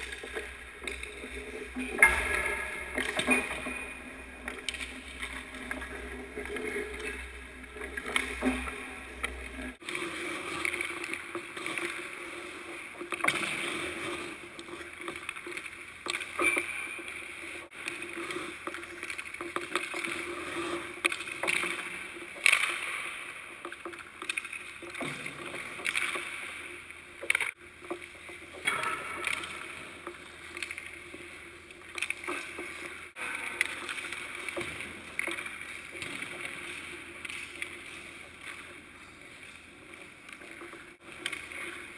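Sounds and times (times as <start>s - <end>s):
skate blades scraping ice: 4.0s - 26.8s.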